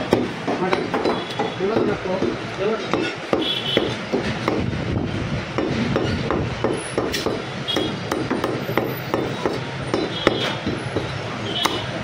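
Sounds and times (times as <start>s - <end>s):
cleaver chopping meat and bone: 0.0s - 4.8s, 5.5s - 12.0s.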